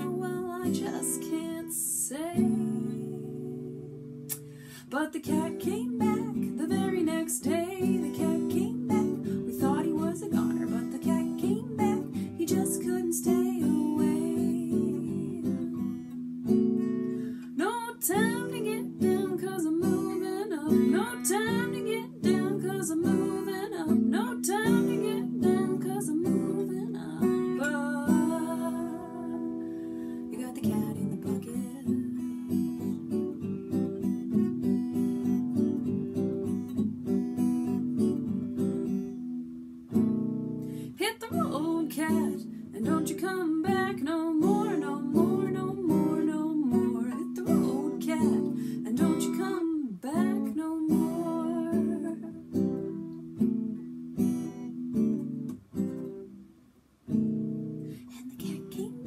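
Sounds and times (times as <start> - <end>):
woman singing: 0.0 - 16.2, 17.2 - 33.2, 40.8 - 53.0, 58.0 - 59.0
acoustic guitar strumming: 0.0 - 56.4.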